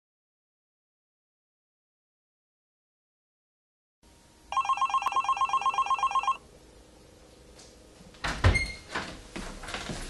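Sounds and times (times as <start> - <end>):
telephone ringing trill: 4.5 - 6.4.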